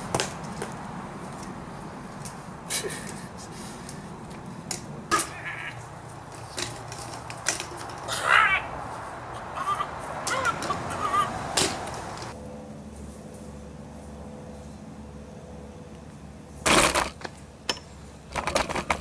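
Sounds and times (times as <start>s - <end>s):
bird squawking: 5.1s - 5.8s, 8.1s - 11.6s.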